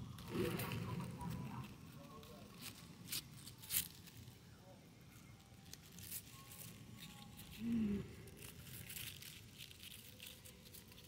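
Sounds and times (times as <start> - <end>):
leaves rustling: 0.0 - 4.3, 5.6 - 11.0
person humming: 7.6 - 8.4.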